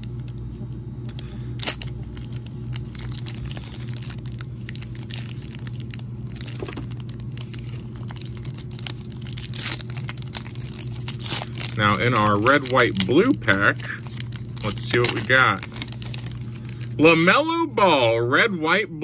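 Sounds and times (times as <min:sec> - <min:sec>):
foil wrapper crinkling and tearing: 0:00.0 - 0:17.0
steady low hum: 0:00.0 - 0:19.0.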